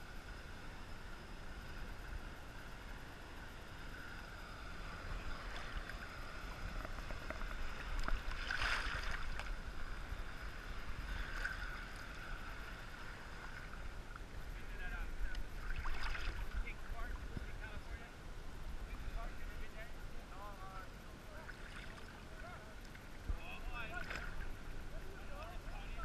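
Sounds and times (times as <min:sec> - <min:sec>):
sea water sloshing and lapping: 0:05.2 - 0:14.3, 0:15.4 - 0:17.2, 0:21.3 - 0:23.2, 0:23.8 - 0:24.8.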